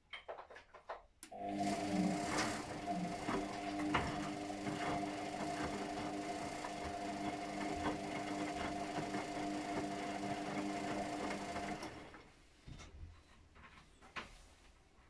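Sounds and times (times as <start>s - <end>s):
washing machine motor hum: 1.2s - 12.6s.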